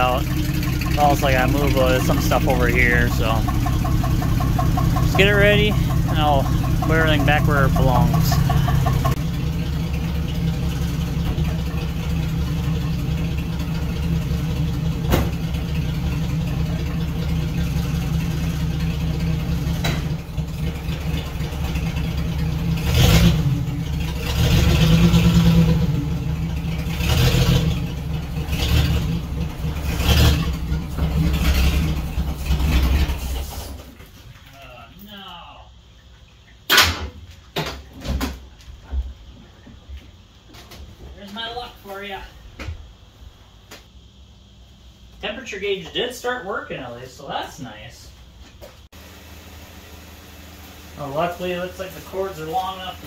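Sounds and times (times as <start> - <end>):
car engine idling and revving: 0.0 - 34.2.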